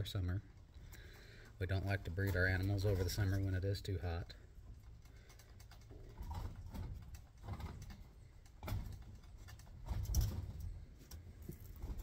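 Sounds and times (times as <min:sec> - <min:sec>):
claws rattling on wire cage: 0:04.6 - 0:12.0.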